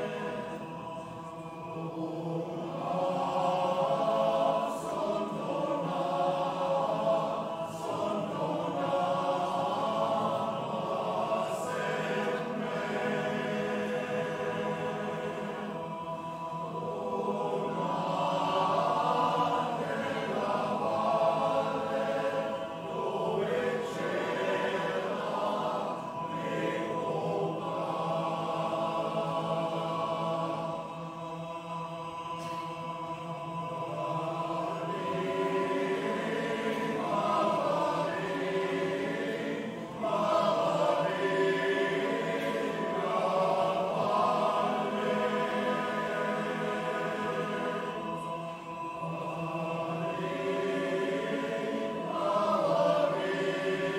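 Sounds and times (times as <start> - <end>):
men's choir singing in harmony: 0.0 - 53.9.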